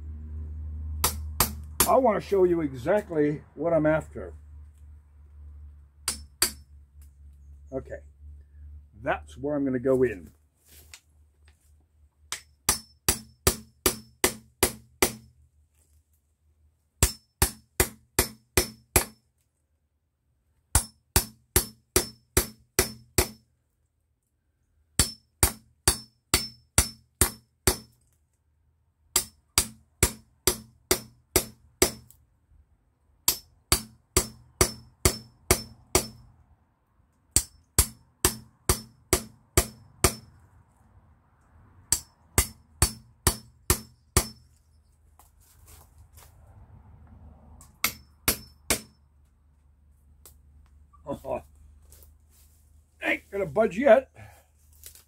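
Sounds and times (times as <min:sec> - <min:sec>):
hammer striking blade: 0:01.0 - 0:02.0, 0:06.0 - 0:06.7, 0:12.3 - 0:15.3, 0:17.0 - 0:19.2, 0:20.8 - 0:23.4, 0:25.0 - 0:28.0, 0:29.2 - 0:32.1, 0:33.3 - 0:36.3, 0:37.4 - 0:40.3, 0:41.9 - 0:44.5, 0:47.7 - 0:49.0.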